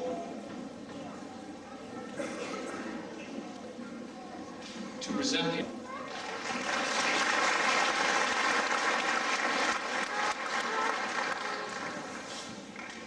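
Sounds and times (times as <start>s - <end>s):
audience applauding: 6.1s - 13.0s.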